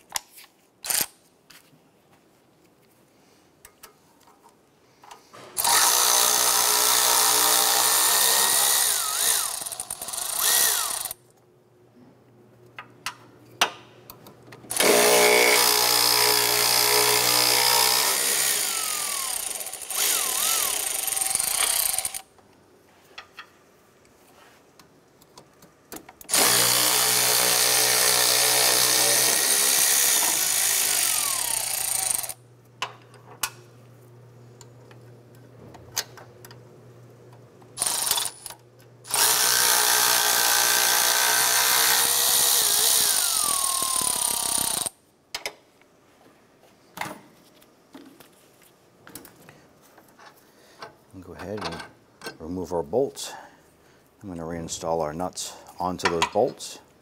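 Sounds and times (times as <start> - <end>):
handheld power tool running: 5.6 - 11.2, 14.7 - 22.3, 26.3 - 32.4, 37.8 - 44.9.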